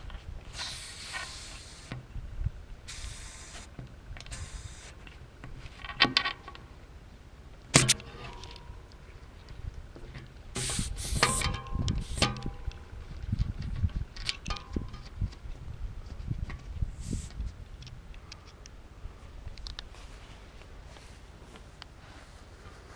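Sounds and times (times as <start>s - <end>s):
air hissing from pump head: 0.5s - 2.0s, 2.9s - 3.7s, 4.3s - 5.0s, 10.6s - 12.3s, 17.0s - 17.3s
sharp click: 7.8s - 9.0s.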